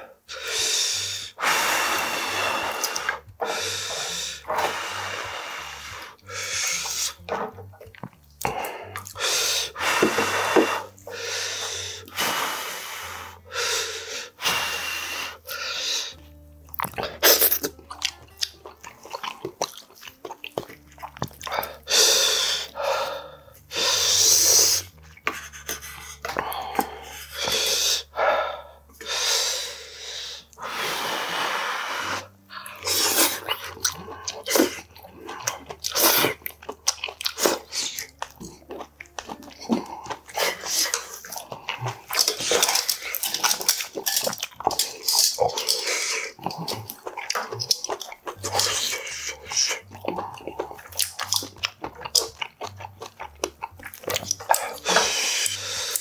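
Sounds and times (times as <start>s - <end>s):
person breathing: 0.0s - 7.5s, 8.4s - 16.2s, 21.5s - 36.1s, 54.6s - 56.0s
noodles slurped and chewed: 0.3s - 56.0s.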